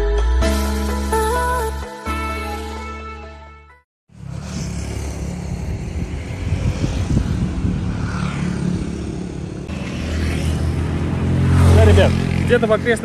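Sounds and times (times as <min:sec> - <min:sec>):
road and wind noise: 0:04.1 - 0:13.0
vehicle engine rumbling: 0:04.1 - 0:13.0.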